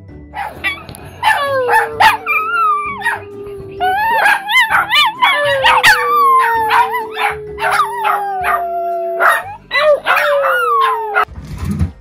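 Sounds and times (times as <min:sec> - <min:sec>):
small dog howling: 0:00.7 - 0:11.3.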